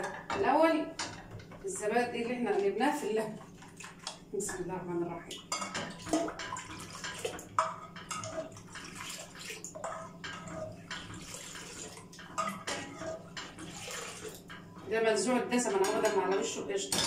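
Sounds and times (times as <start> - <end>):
liquid sloshing and dripping: 2.5 - 14.9.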